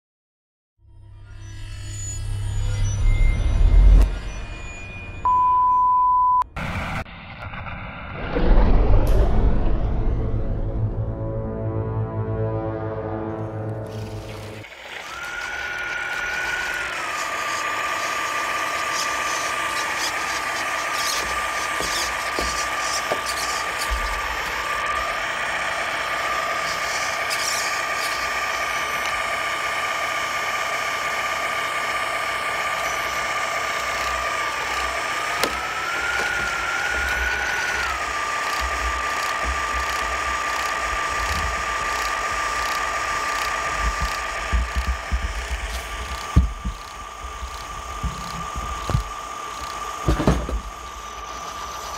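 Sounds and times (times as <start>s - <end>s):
simulated diesel engine idling: 13.9s - 51.9s.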